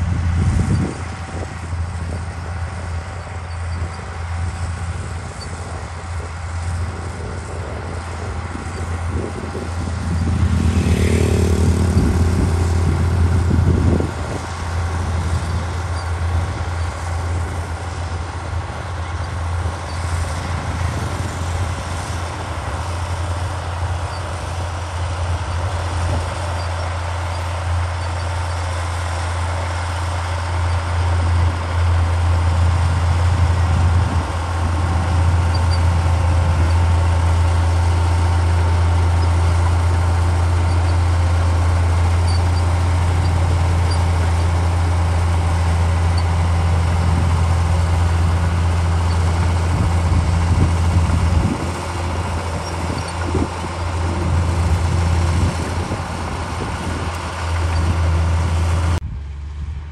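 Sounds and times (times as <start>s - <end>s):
bulldozer diesel engine under load: 0.0s - 59.9s.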